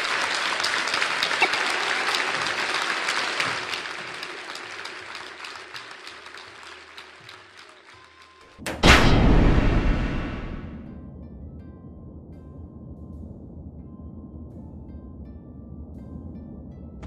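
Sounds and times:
audience applause: 0.0 - 8.6.

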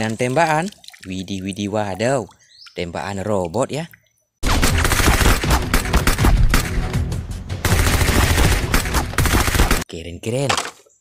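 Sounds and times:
rapid gunfire: 4.4 - 7.0, 7.6 - 9.8
background music: 4.4 - 9.8.

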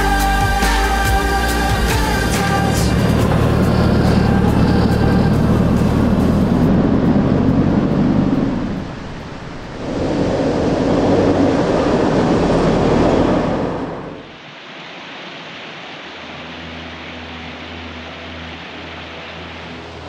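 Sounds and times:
vehicle engine drone: 0.0 - 20.0
tyre and road noise: 1.2 - 14.4.

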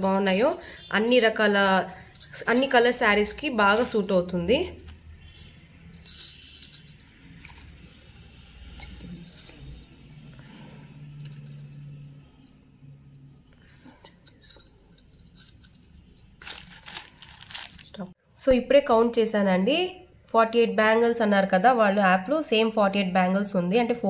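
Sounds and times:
glass bangles clinking: 0.0 - 17.9.

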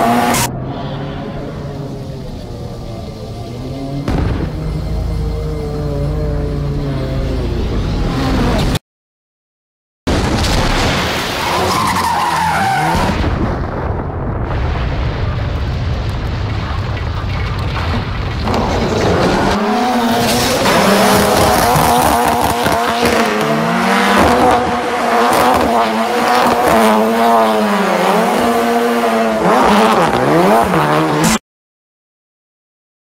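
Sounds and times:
rally car engine revving: 0.0 - 8.8, 18.4 - 31.4.

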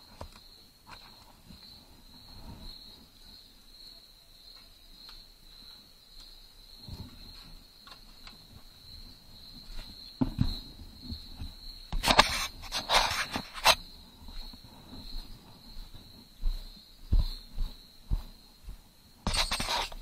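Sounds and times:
crickets trilling: 0.0 - 20.0
gear rustling and scraping: 19.3 - 20.0.

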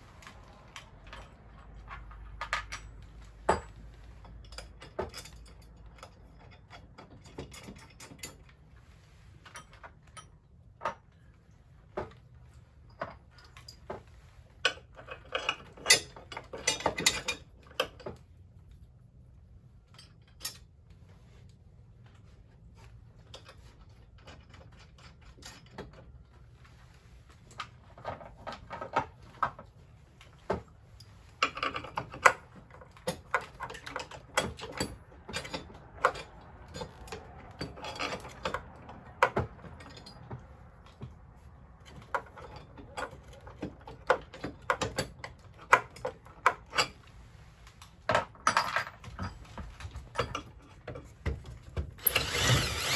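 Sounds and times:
metal nuts and bolts clinking: 0.0 - 8.6, 12.4 - 18.2, 19.8 - 20.8, 27.6 - 41.1, 41.8 - 47.1, 48.0 - 52.9.

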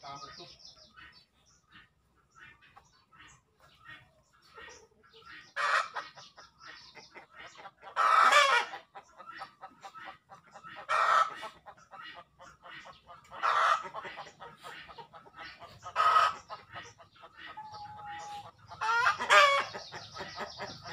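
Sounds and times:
chickens clucking: 0.0 - 20.9
loud chicken calls: 0.9 - 20.9.

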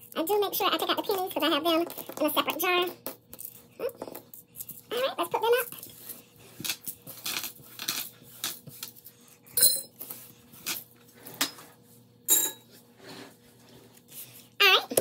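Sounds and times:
coins clinking: 9.6 - 9.9.

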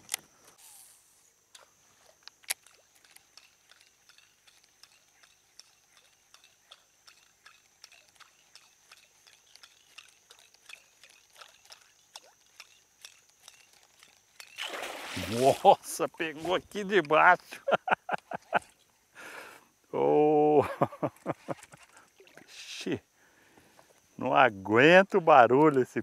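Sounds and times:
fishing lure clicks and splashes: 2.2 - 14.8.

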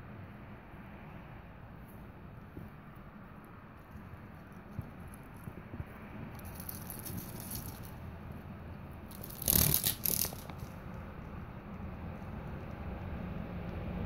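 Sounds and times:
beetle legs scratching on bark: 6.3 - 8.0, 9.1 - 11.0.

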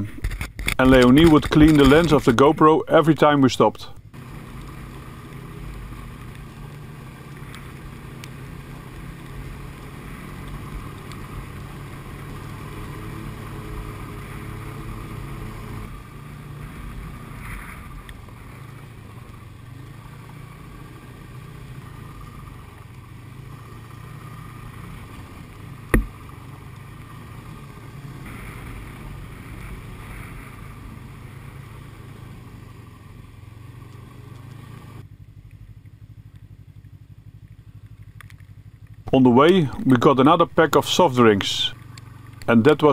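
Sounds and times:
snowmobile engine running: 0.0 - 35.4, 38.9 - 42.9
sharp knock: 25.9 - 26.1.

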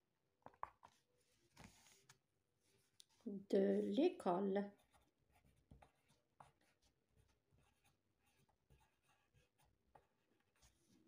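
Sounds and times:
pencil scratching on paper: 4.6 - 11.0.

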